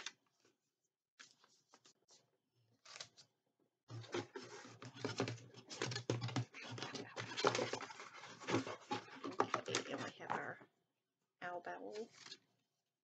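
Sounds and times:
paper and packaging rustling: 3.9 - 10.5.

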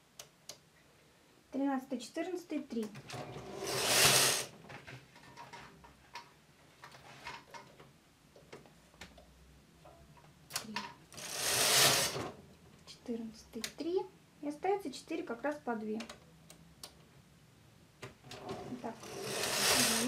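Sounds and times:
knitting machine carriage whirring: 3.1 - 4.5, 11.1 - 12.4, 18.3 - 20.0.

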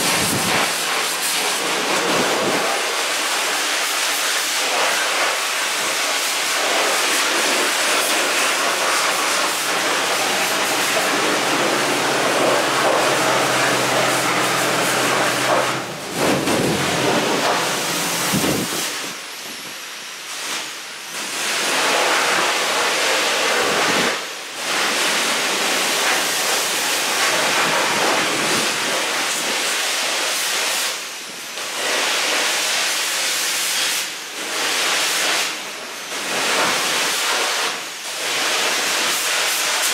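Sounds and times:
pressure washer spray hissing: 0.0 - 39.9
low steady hum: 8.2 - 19.1.

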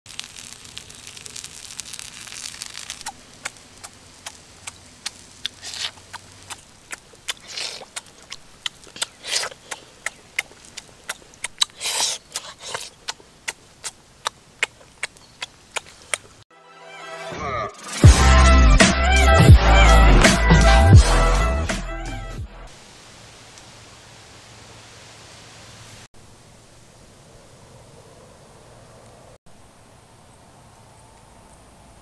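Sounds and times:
light hiss: 0.1 - 16.4, 22.7 - 32.0
wet squishing chews: 0.1 - 16.4
lip-smacking and chewing: 1.8 - 16.4.

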